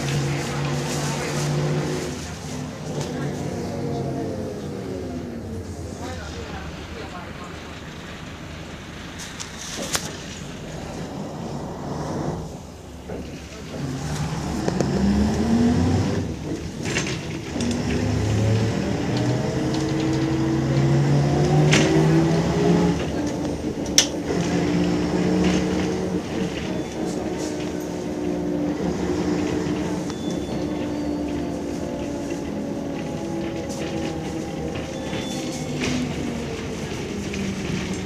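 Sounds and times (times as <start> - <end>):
bus diesel engine accelerating: 0.0 - 38.0.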